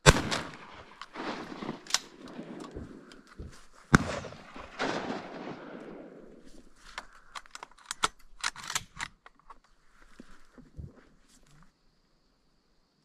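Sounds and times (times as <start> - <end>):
shotgun shots: 0.0 - 6.5.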